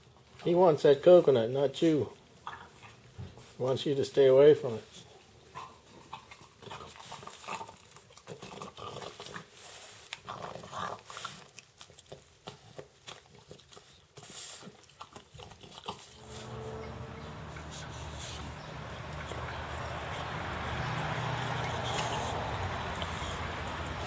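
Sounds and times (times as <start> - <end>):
dog crunching on coconut: 5.9 - 24.0.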